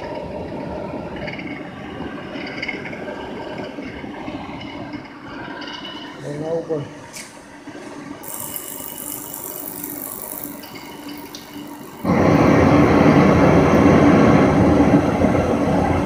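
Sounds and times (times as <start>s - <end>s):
burner blower fan running: 0.0s - 16.0s
gas burner flame rushing: 6.1s - 16.0s.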